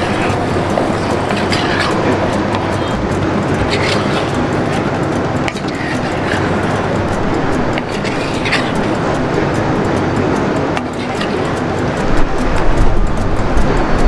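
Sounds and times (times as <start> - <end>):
spatula scraping pot: 0.0 - 9.7, 10.8 - 11.7
steady low rumble: 0.0 - 14.0.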